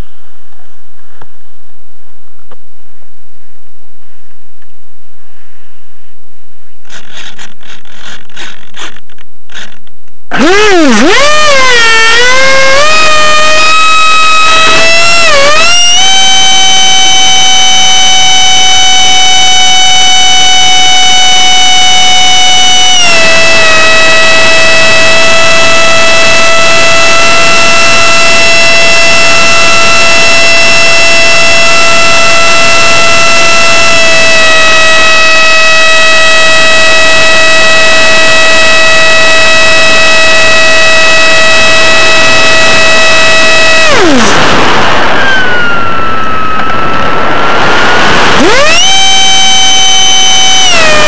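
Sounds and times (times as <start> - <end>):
electric ducted fan whining: 9.5 - 51.0
rushing air: 44.0 - 49.5.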